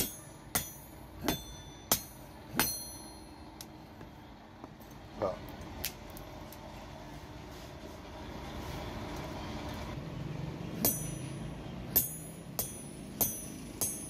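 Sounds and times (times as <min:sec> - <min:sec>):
hammer striking metal punch: 0:00.0 - 0:03.4, 0:10.8 - 0:14.0.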